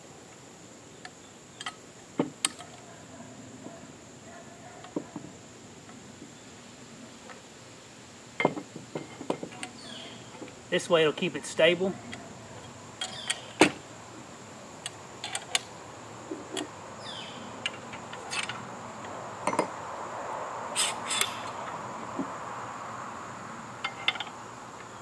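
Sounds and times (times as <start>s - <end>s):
insect buzz: 0.0s - 25.0s
passing vehicle hum: 13.8s - 25.0s
metal clicks and clanks: 14.8s - 15.7s.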